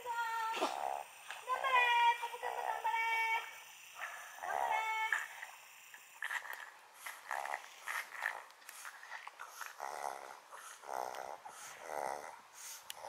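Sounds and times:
small dog grumbling and snorting: 0.3 - 5.5, 6.2 - 12.4.

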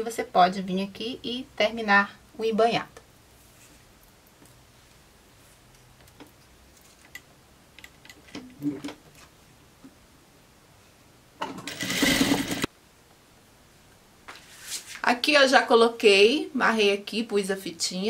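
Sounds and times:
sewing machine stitching: 11.5 - 12.7.

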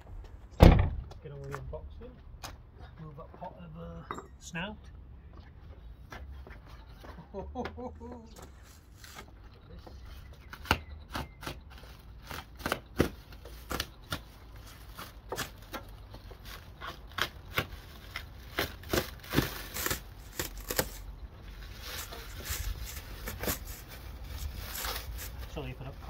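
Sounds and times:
plastic wrapping crinkling and tearing: 14.6 - 25.6.

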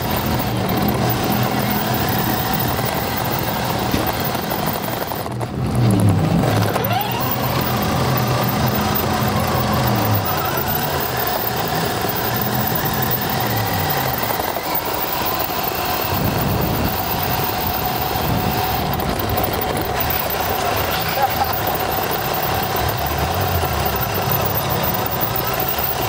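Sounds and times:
rc car motor whine: 0.0 - 26.0.

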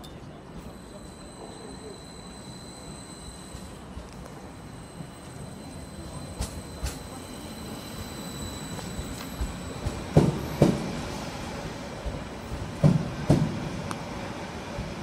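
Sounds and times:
electric train rolling past: 0.4 - 15.0
train wheels knocking over track: 8.7 - 11.1, 12.0 - 14.0.

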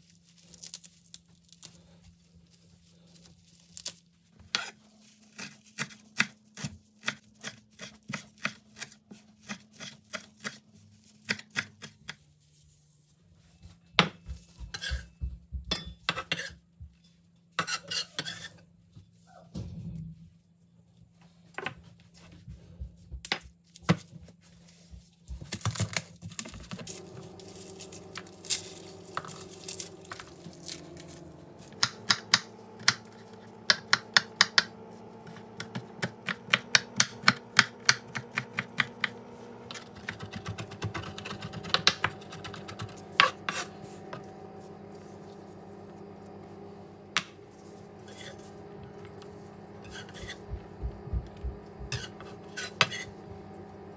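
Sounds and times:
knife chopping on cutting board: 14.0 - 15.1, 31.8 - 44.2, 49.8 - 53.1.

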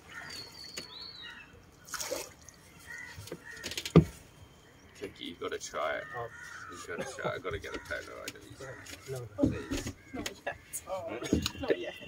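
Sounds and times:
water splashing and dripping: 1.6 - 4.3.

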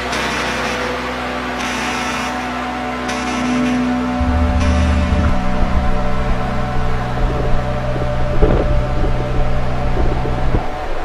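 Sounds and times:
background music with held tones: 0.0 - 11.0
wind noise on microphone: 4.2 - 11.0.

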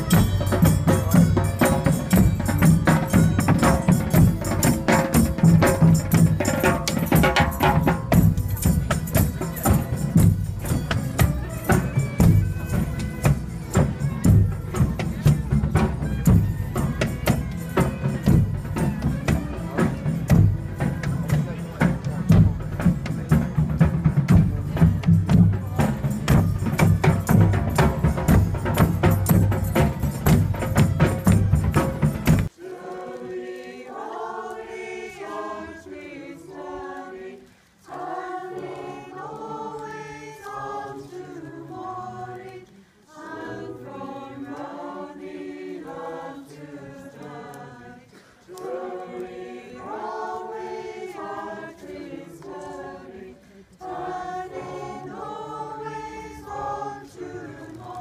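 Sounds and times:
small choir singing: 0.0 - 23.4, 24.7 - 58.0
street procession drumming and music: 0.0 - 36.4.

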